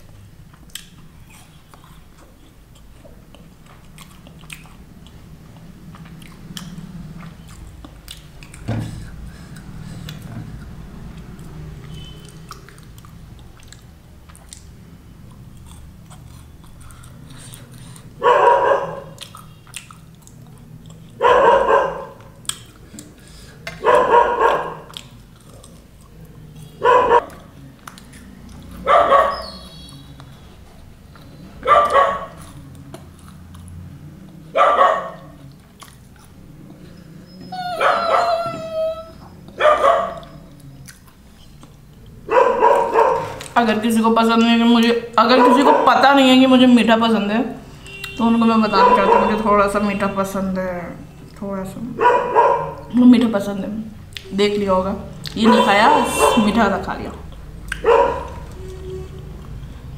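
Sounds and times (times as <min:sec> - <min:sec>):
dog chewing and mouth clicks: 0:00.5 - 0:08.7, 0:10.0 - 0:18.1, 0:19.0 - 0:21.2, 0:24.4 - 0:28.8, 0:31.1 - 0:34.4, 0:35.1 - 0:36.4, 0:39.4 - 0:43.6
dog barking: 0:18.2 - 0:19.2, 0:21.2 - 0:22.2, 0:23.8 - 0:24.9, 0:26.8 - 0:27.4, 0:28.8 - 0:29.7, 0:31.6 - 0:32.4, 0:34.5 - 0:35.4, 0:37.7 - 0:38.6, 0:39.6 - 0:40.4, 0:42.3 - 0:43.4, 0:45.3 - 0:46.1, 0:48.7 - 0:49.4, 0:52.0 - 0:52.9, 0:55.4 - 0:56.5, 0:57.8 - 0:58.5.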